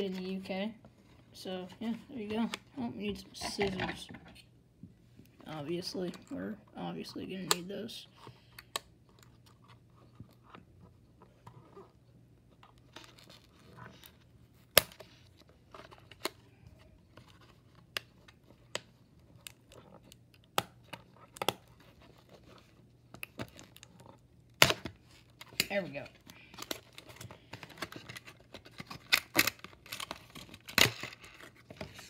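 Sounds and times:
plastic packaging clicks and snaps: 0:26.5 - 0:31.5
cardboard tearing and crinkling: 0:26.6 - 0:32.0.

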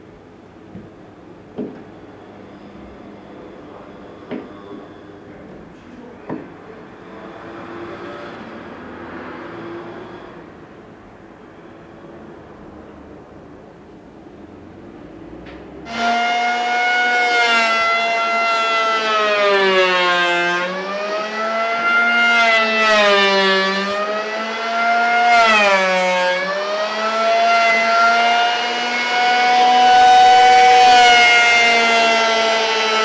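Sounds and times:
electric planer cutting wood: 0:15.8 - 0:33.0.

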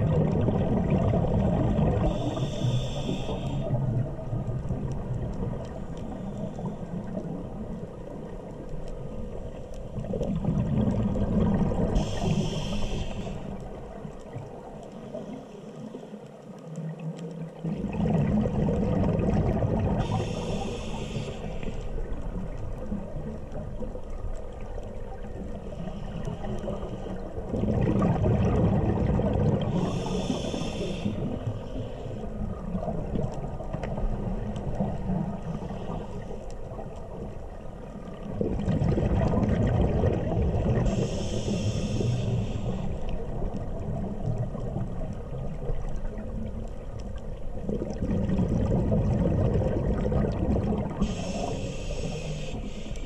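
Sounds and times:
diver exhaling bubbles underwater: 0:00.0 - 0:02.5, 0:10.1 - 0:12.4, 0:17.6 - 0:20.2, 0:27.5 - 0:30.6, 0:38.2 - 0:41.1, 0:47.6 - 0:51.7
regulator valve hiss: 0:02.1 - 0:03.7, 0:12.0 - 0:13.6, 0:20.0 - 0:21.9, 0:29.7 - 0:32.2, 0:40.8 - 0:43.2, 0:51.0 - 0:53.0.

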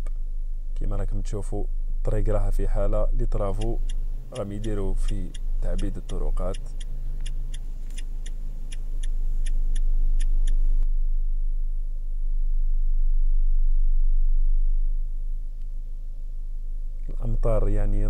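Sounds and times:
car engine and road rumble: 0:00.0 - 0:18.0
turn signal ticking: 0:03.2 - 0:10.9.

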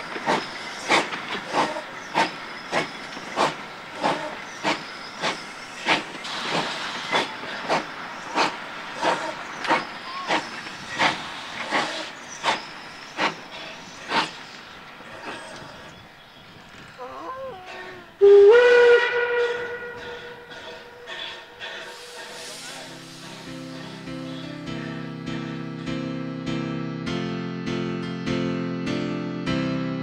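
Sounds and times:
steam hiss: 0:00.0 - 0:15.9, 0:20.0 - 0:24.8
steam locomotive chuffing: 0:00.0 - 0:16.0, 0:18.2 - 0:25.6.

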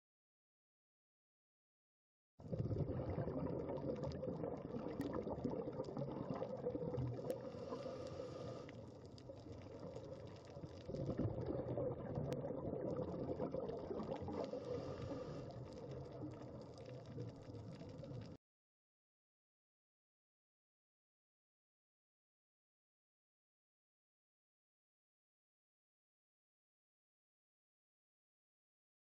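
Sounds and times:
underwater bubbling rushing water: 0:02.4 - 0:18.4.

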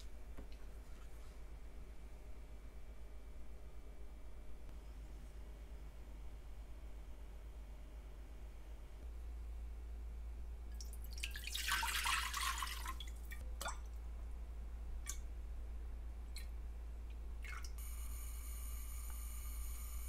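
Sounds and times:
liquid drips: 0:10.7 - 0:14.0, 0:15.0 - 0:15.3, 0:17.1 - 0:17.8
liquid splash: 0:10.8 - 0:13.8.

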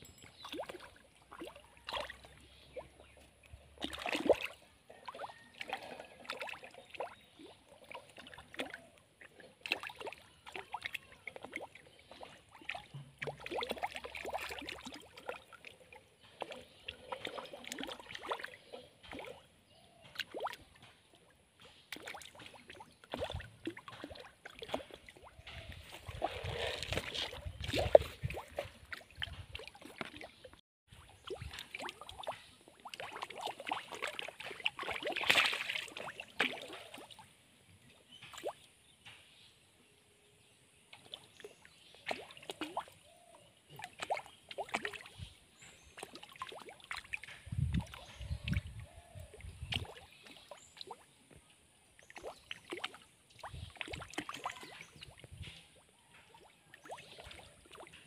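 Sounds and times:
fish splashing at water surface: 0:31.2 - 0:37.2.

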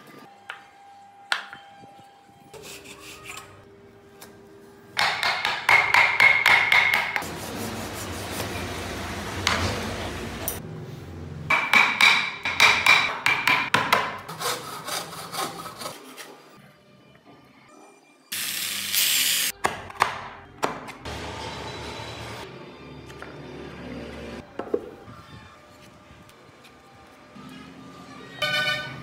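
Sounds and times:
wood sanding strokes: 0:07.2 - 0:08.7.

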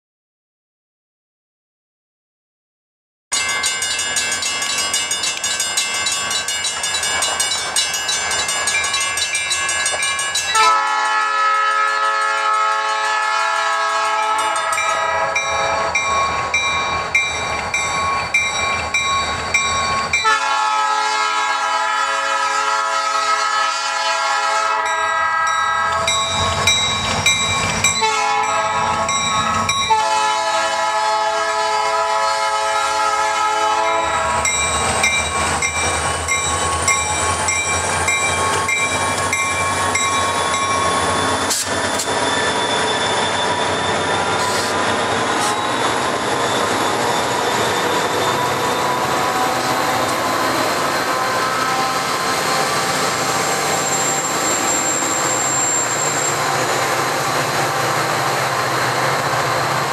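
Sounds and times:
rapid metallic ringing bells: 0:03.3 - 0:10.6, 0:14.4 - 0:20.2, 0:26.1 - 0:29.9, 0:34.4 - 0:41.4
locomotive air horn blasts: 0:10.5 - 0:15.9, 0:20.2 - 0:26.1, 0:28.0 - 0:34.5.

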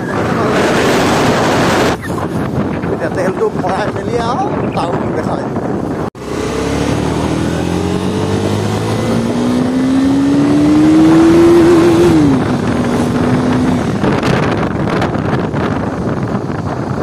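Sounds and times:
motorcycle engine accelerating: 0:00.0 - 0:02.9, 0:05.7 - 0:17.0
wind noise on microphone: 0:00.0 - 0:17.0.

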